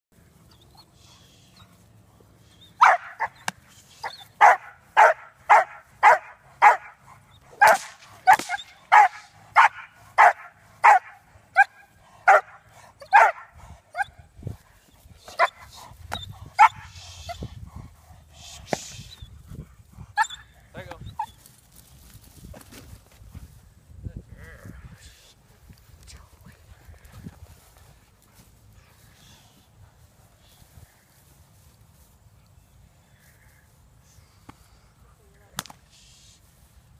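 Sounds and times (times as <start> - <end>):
dog barking: 2.8 - 3.4, 4.4 - 7.0, 7.6 - 14.1.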